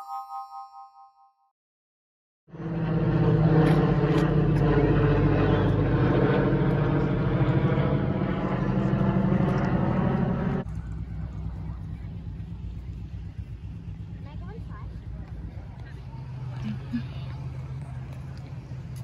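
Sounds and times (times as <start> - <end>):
airplane engines droning overhead: 2.5 - 19.0
faint outdoor noise: 10.2 - 19.0.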